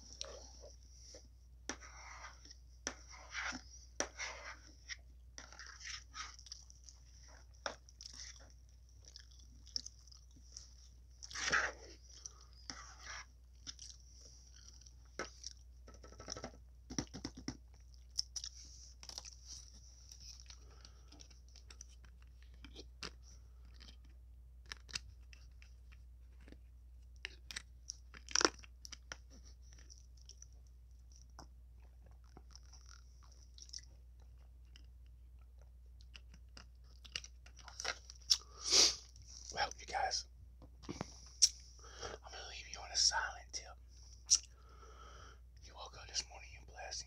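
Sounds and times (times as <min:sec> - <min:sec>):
chewing salad with crunches: 0:05.4 - 0:12.8, 0:13.5 - 0:15.6, 0:17.0 - 0:39.5.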